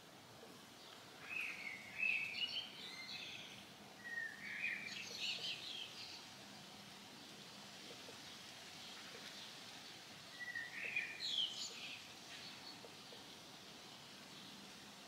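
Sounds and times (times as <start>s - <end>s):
faint outdoor background noise: 0.0s - 15.0s
bird chirping: 0.8s - 6.3s, 10.3s - 14.6s.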